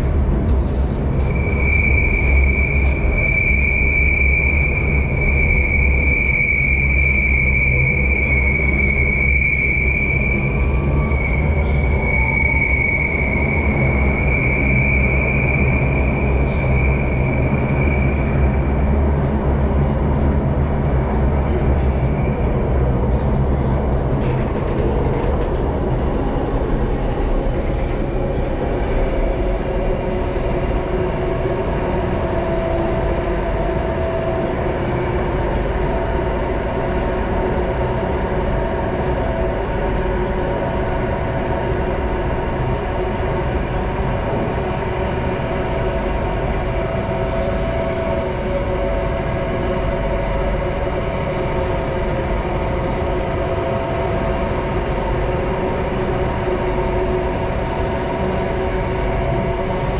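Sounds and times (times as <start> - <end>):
high whine: 0.0 - 24.1
humming drone: 0.0 - 59.9
train wheels rumbling in tunnel: 0.0 - 59.9.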